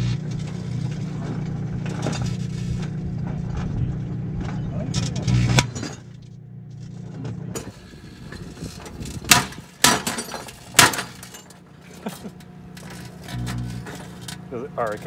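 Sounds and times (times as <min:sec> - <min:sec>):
microwave humming: 0:10.5 - 0:14.9.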